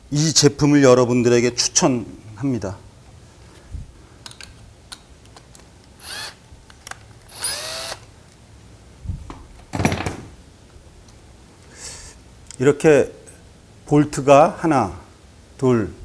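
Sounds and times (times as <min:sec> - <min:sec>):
drill-driver motor running: 0:06.0 - 0:06.4, 0:07.3 - 0:08.1.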